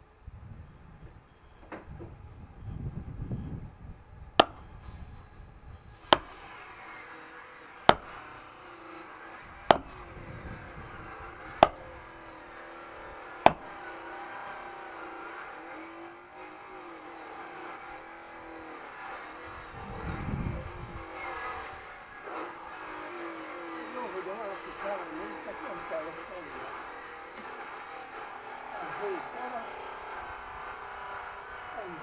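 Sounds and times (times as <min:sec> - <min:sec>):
firewood being split: 0:04.3 - 0:05.0, 0:05.8 - 0:15.2.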